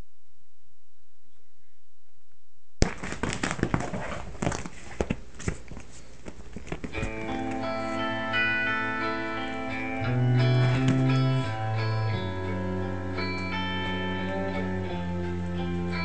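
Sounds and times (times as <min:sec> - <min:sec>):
guitar music: 0:07.0 - 0:16.0.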